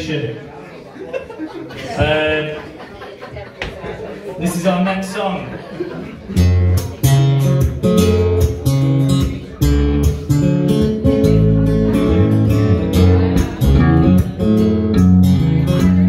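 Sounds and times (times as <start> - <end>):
acoustic guitar strumming chords: 6.4 - 16.0
electric bass guitar line: 6.4 - 16.0.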